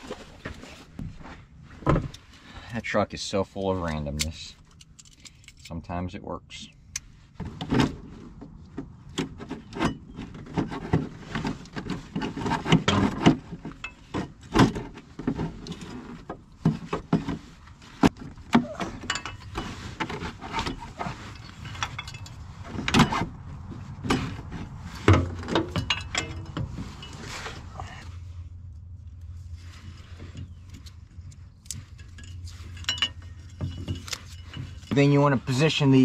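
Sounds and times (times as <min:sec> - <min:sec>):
hand tools being rummaged: 0:09.5 - 0:28.0, 0:29.6 - 0:36.0.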